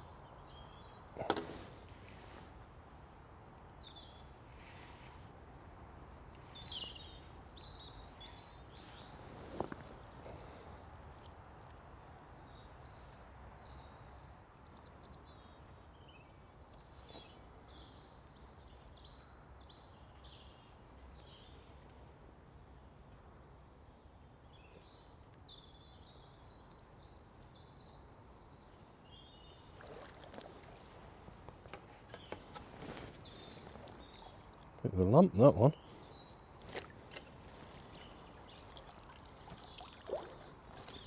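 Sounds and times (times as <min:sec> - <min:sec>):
small birds chirping: 0:03.0 - 0:11.3, 0:12.4 - 0:41.0
fish splashing in water: 0:29.8 - 0:30.8, 0:37.8 - 0:41.0.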